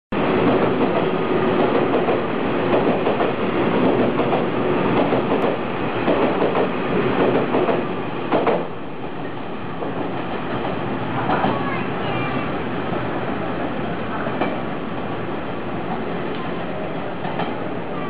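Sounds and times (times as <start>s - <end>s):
train wheels rumbling on rail: 0.1s - 18.0s
wheels clacking over rail joints: 0.4s - 12.0s, 17.2s - 17.8s.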